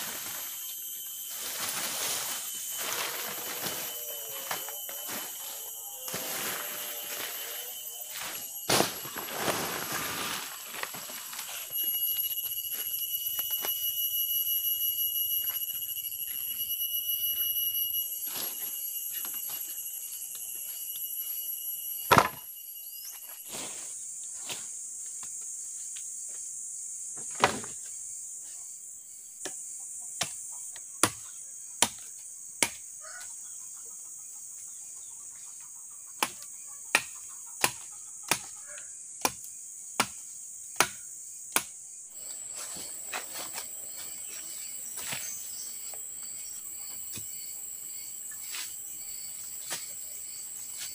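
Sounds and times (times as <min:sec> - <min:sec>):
insects chirping chorus: 0:00.0 - 0:50.9
machete chopping wooden stick: 0:31.8 - 0:32.0, 0:32.6 - 0:32.8, 0:36.2 - 0:38.5, 0:39.2 - 0:40.2, 0:40.8 - 0:41.7.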